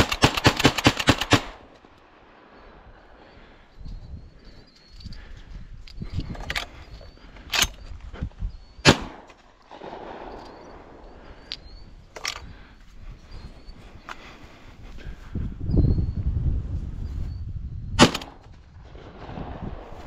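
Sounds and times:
wind on microphone: 0:02.2 - 0:20.0
shotgun firing: 0:08.8 - 0:10.6, 0:18.0 - 0:18.4.

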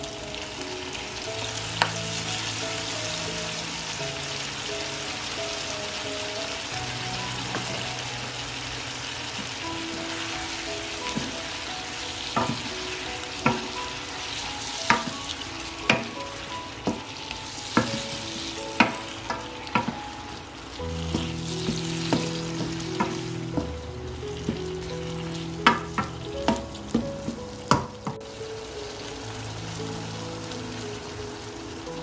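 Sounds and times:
food sizzling in a wok: 0:00.0 - 0:32.0
wooden spoon knocking on wok: 0:16.8 - 0:17.1, 0:18.8 - 0:20.1, 0:21.1 - 0:28.2.

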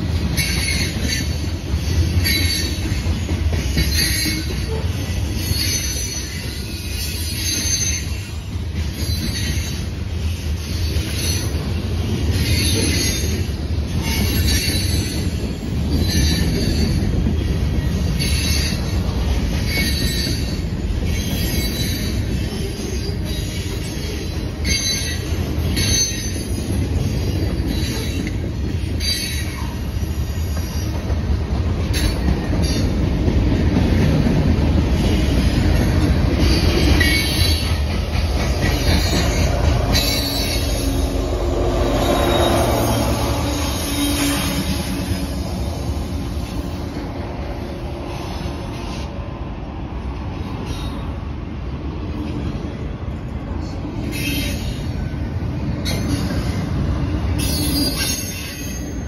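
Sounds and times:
freight train rumbling past: 0:00.0 - 0:59.0
metallic wheel squeals: 0:00.4 - 0:11.7, 0:19.6 - 0:31.0, 0:36.4 - 0:37.9, 0:38.5 - 0:46.8, 0:57.3 - 0:59.0.

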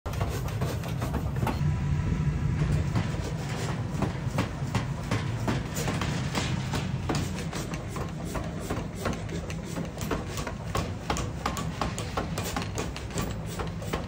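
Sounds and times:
low machine rumble: 0:01.5 - 0:08.6
sharp metallic knocks: 0:02.6 - 0:14.0.

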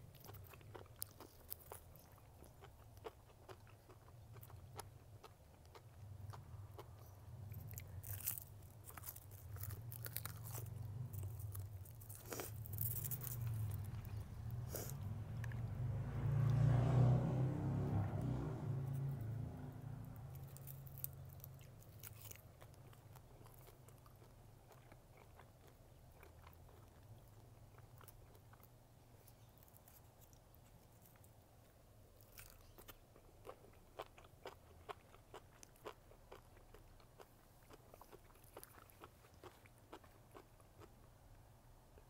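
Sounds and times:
chewing with crunches: 0:00.0 - 0:16.7, 0:17.7 - 0:41.2.

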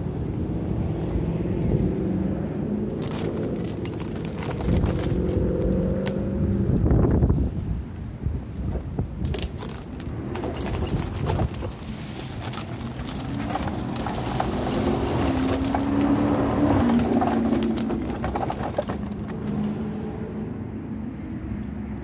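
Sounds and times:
city traffic rumble: 0:00.0 - 0:22.0
footsteps through grass and leaves: 0:09.9 - 0:17.8.

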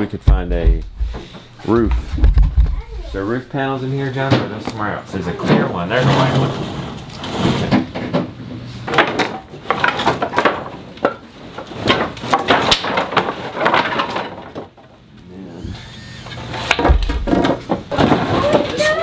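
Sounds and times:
wooden boards clattering: 0:04.2 - 0:15.1, 0:16.4 - 0:19.0.

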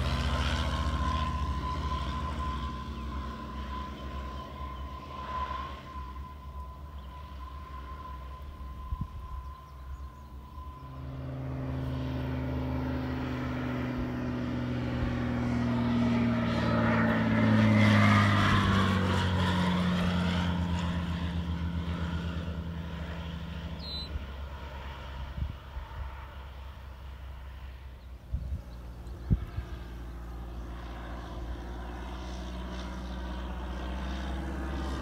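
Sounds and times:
propeller airplane flying overhead: 0:00.0 - 0:35.0.

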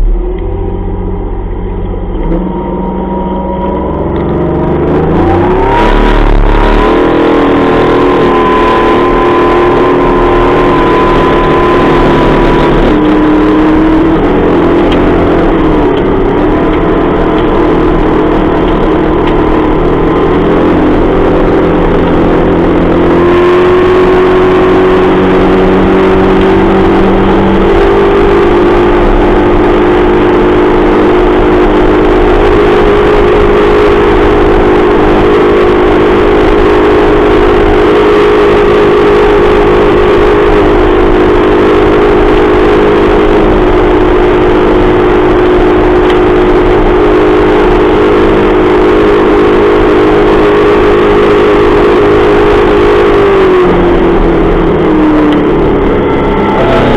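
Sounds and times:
outboard motor running: 0:00.0 - 0:56.9.

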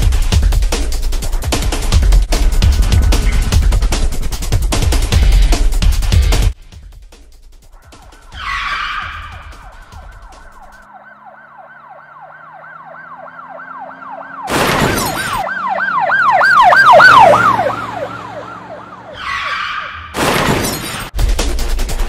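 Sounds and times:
police siren wailing: 0:07.8 - 0:20.2
loud crash: 0:14.5 - 0:15.4, 0:20.1 - 0:21.1.

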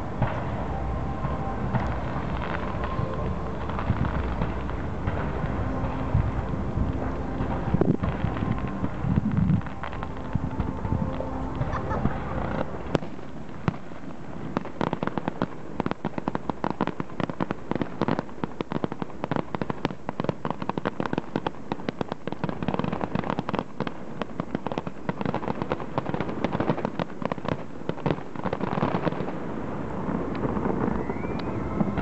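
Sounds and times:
fireworks crackling and popping: 0:00.0 - 0:32.0.

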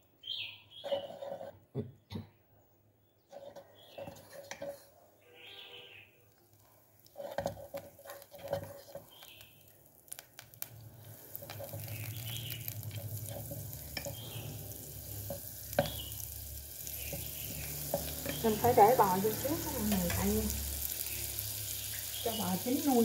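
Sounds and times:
chopsticks knocking and scraping pot: 0:00.8 - 0:02.1, 0:03.3 - 0:05.0, 0:07.0 - 0:09.5, 0:10.4 - 0:16.2, 0:16.8 - 0:20.4
butter sizzling in pot: 0:03.3 - 0:04.9, 0:06.2 - 0:23.0.

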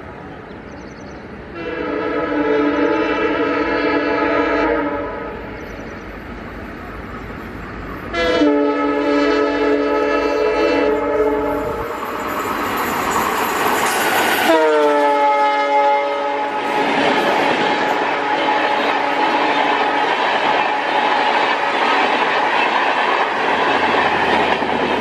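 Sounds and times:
train rush and clatter: 0:00.0 - 0:25.0
locomotive air horn: 0:01.5 - 0:05.4, 0:08.1 - 0:11.9, 0:14.4 - 0:16.7, 0:18.0 - 0:19.9.

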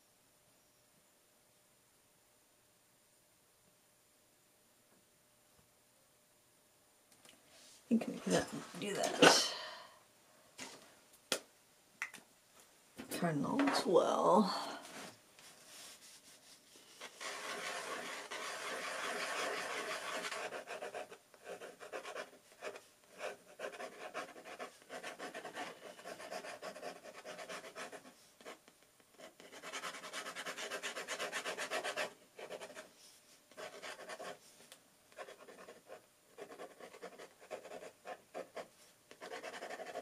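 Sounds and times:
pen nib scratching on paper: 0:17.0 - 0:28.6, 0:29.2 - 0:32.9, 0:35.2 - 0:40.0.

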